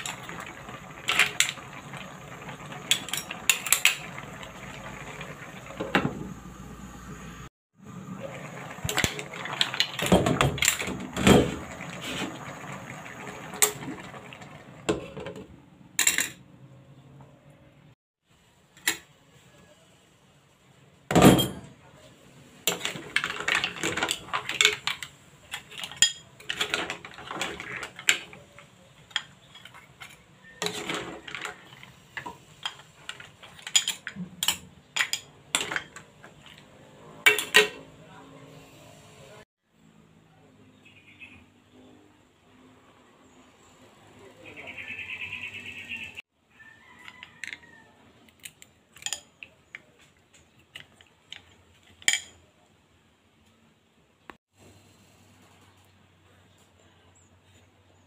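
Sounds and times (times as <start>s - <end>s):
metal spoon scraping in a pan: 22.7s - 37.8s.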